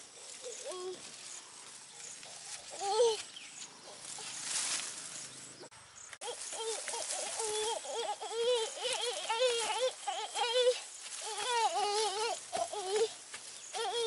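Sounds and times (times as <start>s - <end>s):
rustling leaves and branches: 0.0s - 14.0s
monkey wavering cries: 6.2s - 13.1s, 13.8s - 14.0s.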